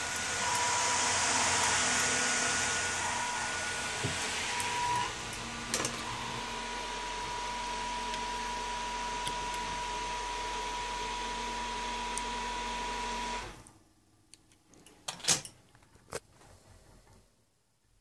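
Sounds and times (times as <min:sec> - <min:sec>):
small electric motor whining: 0:00.0 - 0:13.6.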